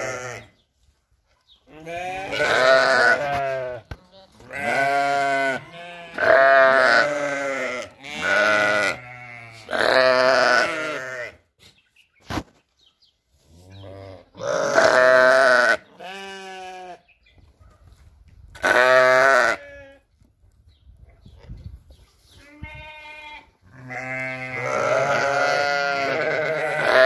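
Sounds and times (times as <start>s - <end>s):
sheep bleating: 0.0s - 0.5s, 1.7s - 11.4s, 13.9s - 17.0s, 18.6s - 20.0s, 22.4s - 27.0s.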